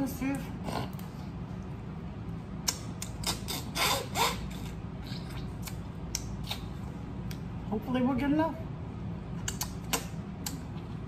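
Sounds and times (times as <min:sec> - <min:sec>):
wet eating sounds: 0:02.6 - 0:07.5.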